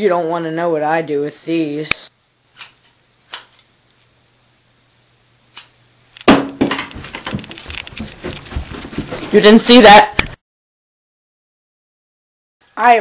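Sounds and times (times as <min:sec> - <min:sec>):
scissors snipping: 0:02.6 - 0:03.7
rustling and knocking: 0:06.3 - 0:09.6.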